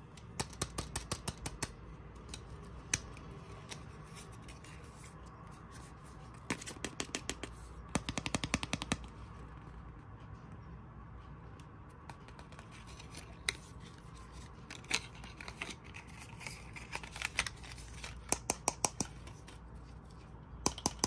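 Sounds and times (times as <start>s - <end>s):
plastic capsule and paper handling: 12.1s - 20.8s.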